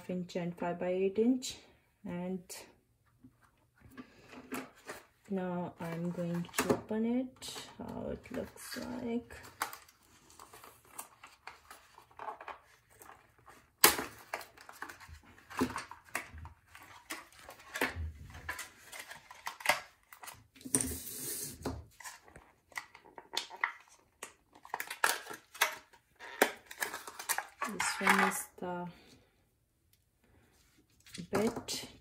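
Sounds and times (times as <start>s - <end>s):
plastic and cardboard crinkling: 3.4s - 20.7s, 21.8s - 28.5s
small parts clattering: 26.4s - 28.5s.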